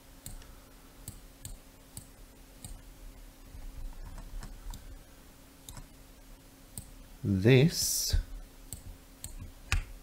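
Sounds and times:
faint steady hum: 0.0s - 10.0s
computer mouse clicks: 0.2s - 2.8s, 3.9s - 4.9s, 5.6s - 5.9s.

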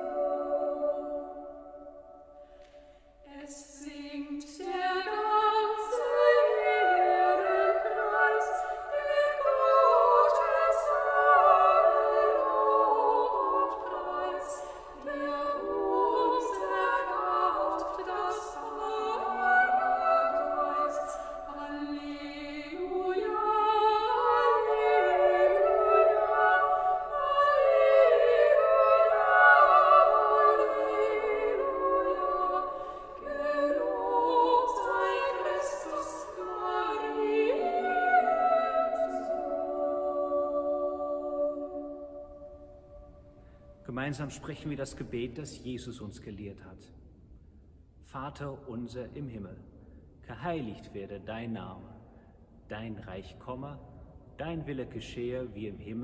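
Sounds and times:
women singing a cappella: 0.0s - 43.4s.

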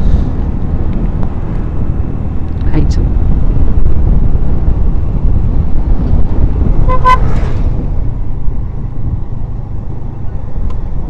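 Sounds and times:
wind on microphone: 0.0s - 9.9s
engine noise: 0.0s - 11.0s
vehicle horn toots: 6.8s - 7.4s.

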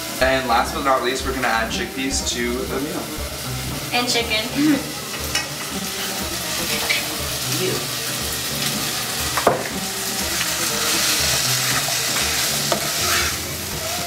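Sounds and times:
food sizzling in a saucepan: 0.0s - 14.0s
spoon scraping a pot: 10.9s - 13.4s.

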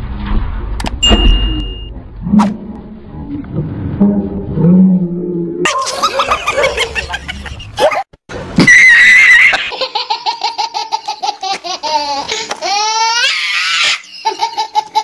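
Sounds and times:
hearty belly laughter: 5.7s - 8.0s.

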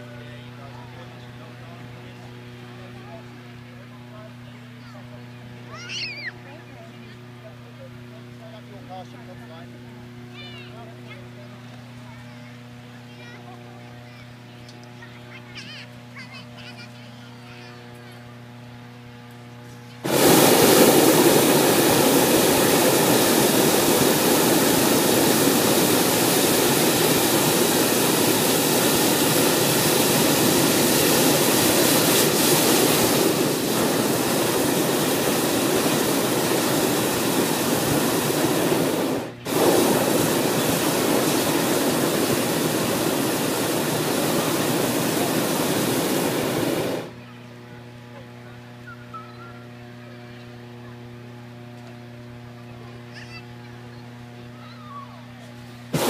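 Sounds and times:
propane burner blasting: 0.0s - 6.4s, 18.4s - 49.0s, 50.5s - 56.0s.

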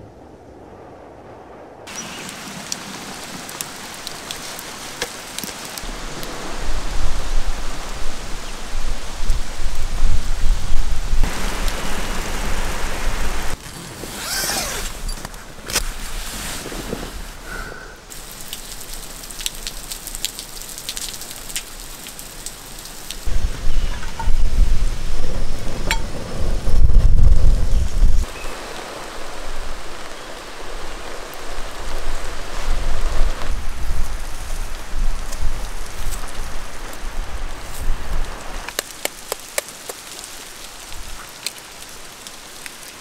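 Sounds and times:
steady rain falling: 0.0s - 43.0s
sharp raindrop ticks: 1.9s - 6.4s, 18.1s - 23.3s, 38.2s - 43.0s.

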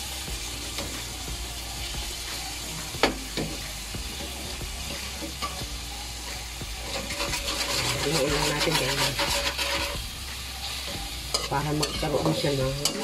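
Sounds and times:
meat sizzling in a wok: 0.0s - 13.0s
spatula stirring in a wok: 0.0s - 13.0s
spatula clanking against wok: 10.7s - 13.0s.

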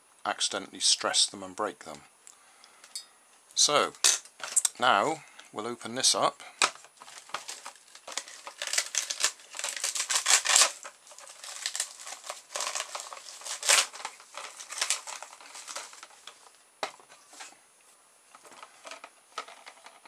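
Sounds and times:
plastic packaging crinkling: 6.6s - 17.6s, 18.3s - 20.0s.

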